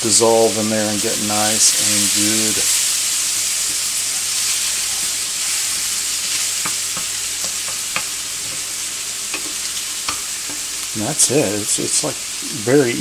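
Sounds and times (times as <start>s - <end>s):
food sizzling in a pan: 0.0s - 13.0s
wooden spoon knocking on pan: 6.6s - 8.7s.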